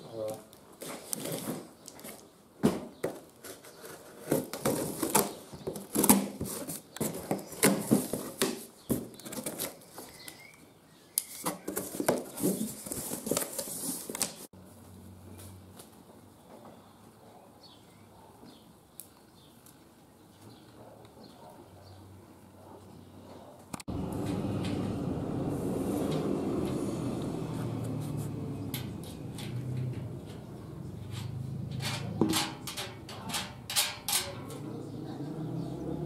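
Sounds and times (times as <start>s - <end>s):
cardboard and packaging rustling: 0.3s - 10.5s, 11.2s - 16.1s.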